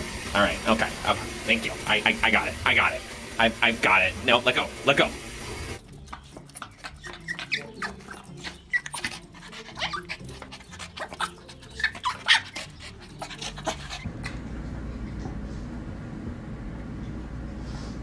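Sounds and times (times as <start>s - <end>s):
small dog whining: 6.6s - 14.4s.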